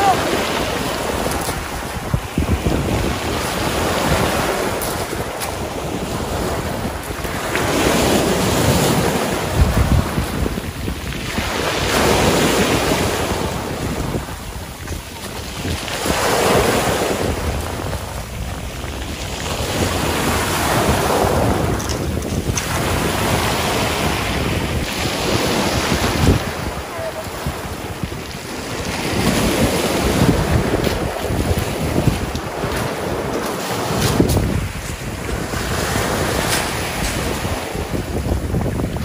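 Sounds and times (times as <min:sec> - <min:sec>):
waves breaking on shingle: 0:00.0 - 0:39.0
wind buffeting microphone: 0:00.0 - 0:39.0.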